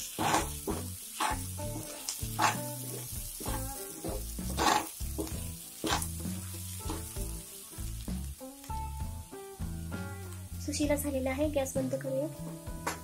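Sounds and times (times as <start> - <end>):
spatula stirring puffed rice in pan: 0.0 - 8.1
background music: 0.0 - 13.0.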